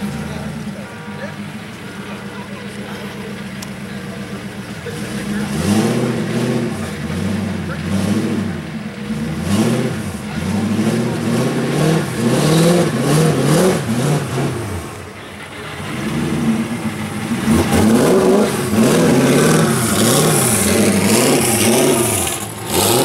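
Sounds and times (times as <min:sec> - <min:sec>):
car engine revving: 0:00.0 - 0:23.0.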